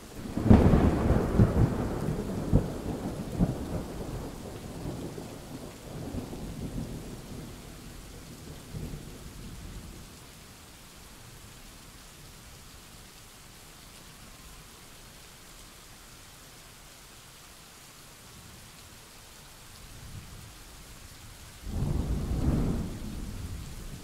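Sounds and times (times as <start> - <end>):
steady rain: 0.0 - 24.0
thunder rumbling and cracking: 0.3 - 7.8, 21.6 - 24.0.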